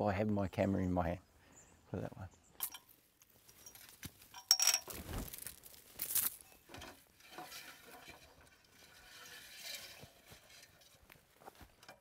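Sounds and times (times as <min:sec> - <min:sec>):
sharp clinks and knocks: 0:02.6 - 0:05.0
rustling in undergrowth: 0:02.8 - 0:08.1, 0:09.6 - 0:11.8.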